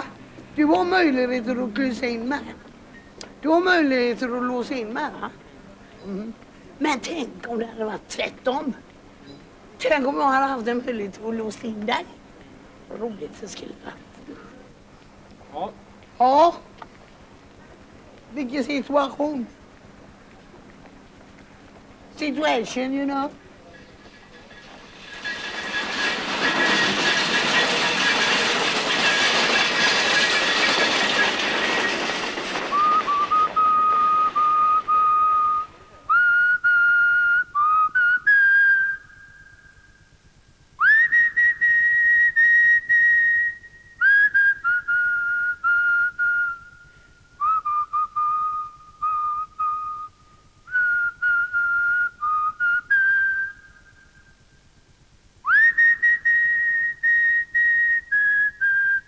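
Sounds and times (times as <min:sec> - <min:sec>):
person whistling a slow tune: 0:32.8 - 0:40.1, 0:40.8 - 0:54.4, 0:55.5 - 0:59.0.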